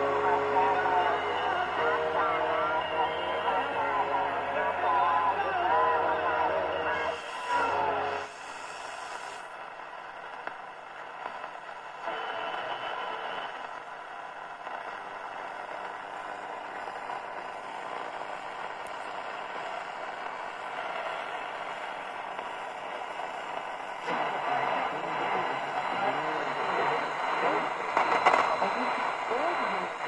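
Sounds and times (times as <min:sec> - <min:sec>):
radio station audio: 0:00.0 - 0:09.6, 0:11.2 - 0:13.8, 0:16.5 - 0:30.0
radio static hiss: 0:00.0 - 0:30.0.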